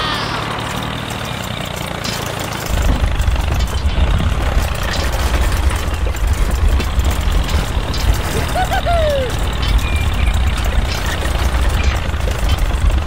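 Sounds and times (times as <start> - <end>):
engine running: 0.0 - 13.0
low rumble: 2.7 - 13.0.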